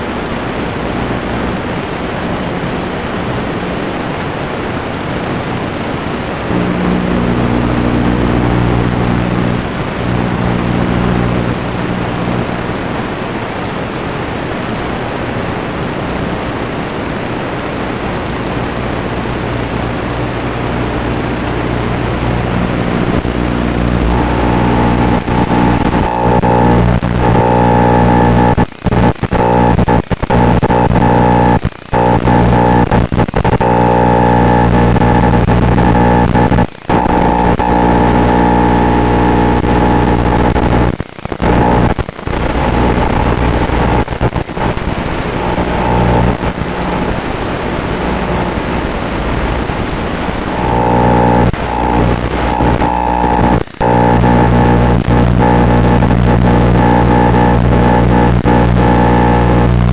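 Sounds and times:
static hiss: 0:00.0 - 0:59.9
droning tones: 0:06.5 - 0:12.7, 0:21.0 - 0:47.2, 0:50.4 - 0:59.9.

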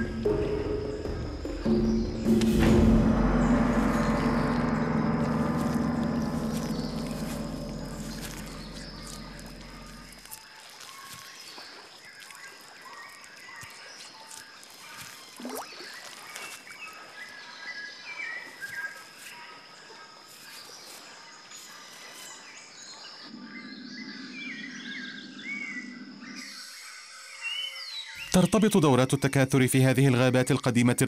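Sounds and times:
low background music: 0:00.0 - 0:10.3
steady high-pitched tone: 0:01.7 - 0:10.3
small birds chirping: 0:03.8 - 0:29.6.

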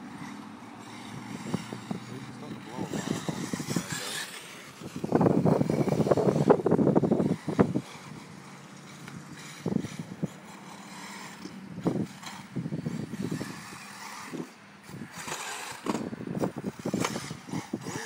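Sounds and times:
rc car motor hum: 0:00.0 - 0:18.0.

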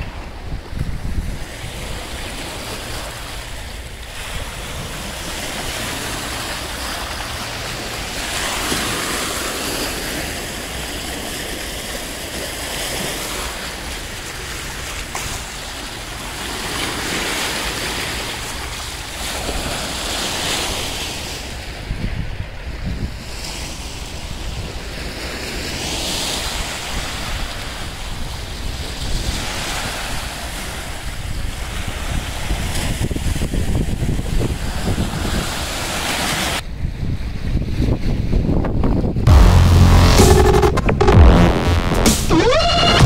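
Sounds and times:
wind rumbling on microphone: 0:00.0 - 0:10.2.

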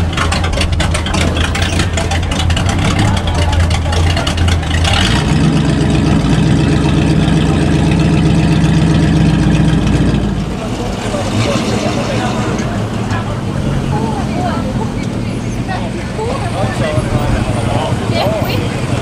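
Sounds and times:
car exhaust idling: 0:00.0 - 0:19.0.

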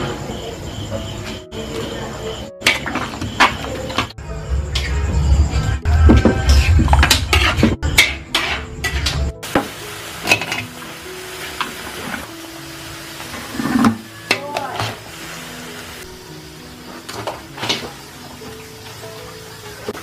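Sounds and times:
soft background music: 0:00.0 - 0:20.0
metal ladle scraping a wok: 0:06.4 - 0:09.3
sauce sizzling: 0:08.2 - 0:20.0.

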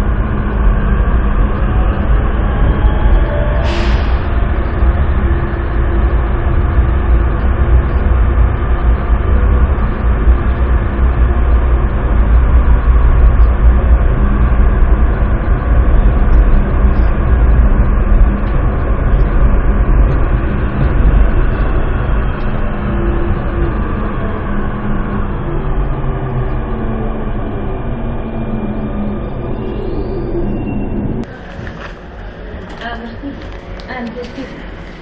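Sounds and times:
metro train rumble in tunnel: 0:00.0 - 0:35.0.

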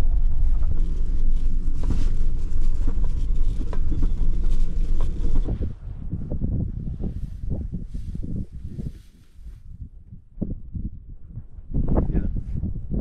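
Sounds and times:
engine and tyre rumble: 0:00.0 - 0:09.6.

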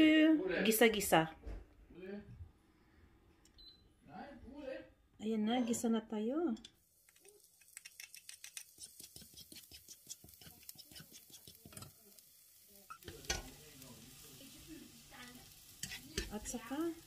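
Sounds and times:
garlic sizzling in hot oil: 0:06.8 - 0:17.0.

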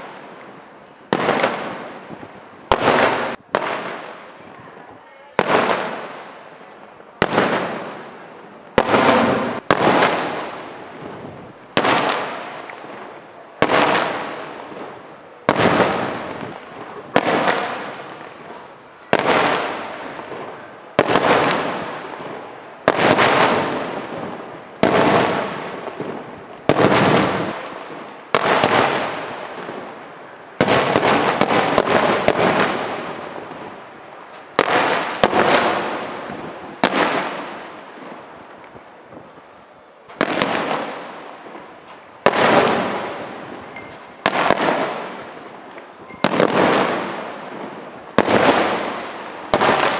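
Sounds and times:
firework shells bursting: 0:40.1 - 0:49.9.

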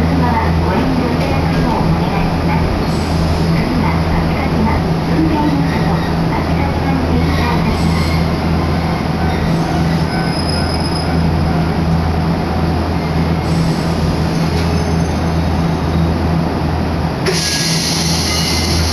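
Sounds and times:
train wheels rumbling on rail: 0:00.0 - 0:18.9.

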